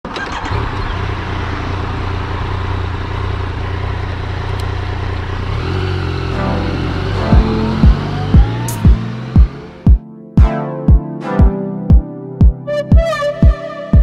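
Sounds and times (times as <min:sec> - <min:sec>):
wind and road noise: 0:00.0 - 0:09.9
motorcycle engine running: 0:00.1 - 0:10.0.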